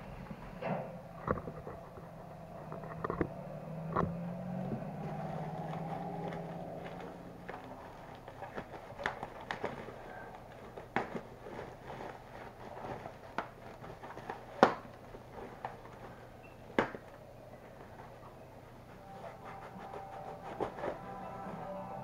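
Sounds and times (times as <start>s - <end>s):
sharp clicks and knocks: 0.6s - 4.2s
plastic bag rustling and crinkling: 4.9s - 16.3s.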